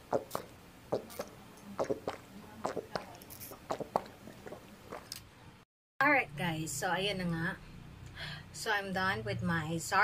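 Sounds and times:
person gulping a drink: 0:00.0 - 0:05.2.

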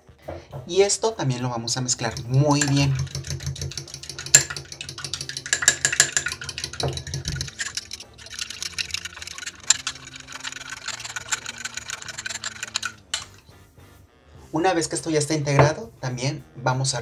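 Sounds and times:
fork beating eggs in bowl: 0:01.6 - 0:13.4
liquid splashing: 0:02.0 - 0:13.4.

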